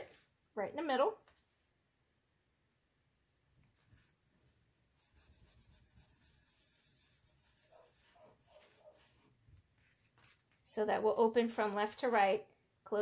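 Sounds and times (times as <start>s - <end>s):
hands rubbing cardstock: 5.0s - 10.7s
paper scrapes: 5.1s - 10.6s.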